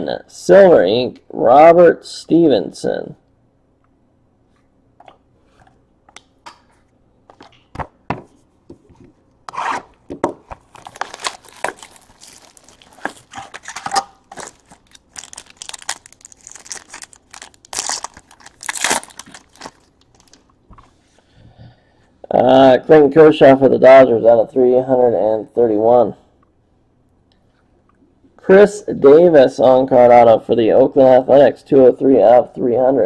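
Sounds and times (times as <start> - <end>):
plastic wrap crinkling: 10.4 - 20.6.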